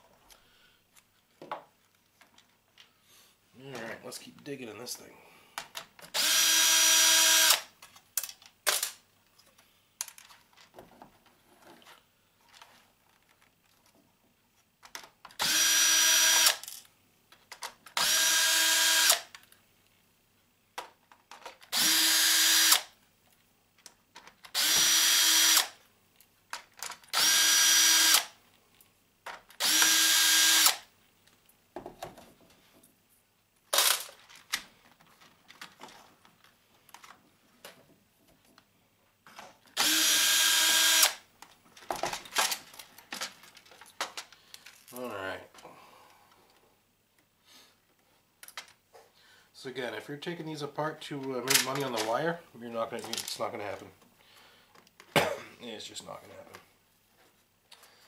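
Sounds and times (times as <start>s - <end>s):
cordless drill whining: 6.1s - 7.7s, 15.4s - 16.6s, 18.0s - 19.3s, 21.7s - 22.9s, 24.6s - 25.8s, 27.1s - 28.3s, 29.6s - 30.8s, 39.8s - 41.2s
handling noises: 7.8s - 15.4s, 31.2s - 39.7s, 41.3s - 45.6s, 51.1s - 55.2s.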